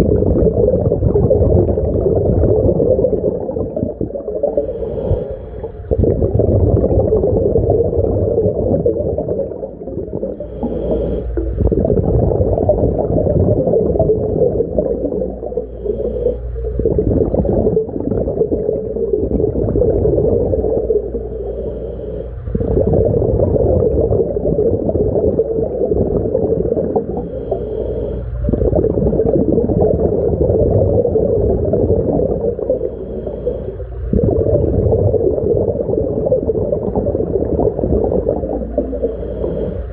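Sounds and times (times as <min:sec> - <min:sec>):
underwater regulator bubbling: 0:00.0 - 0:39.9.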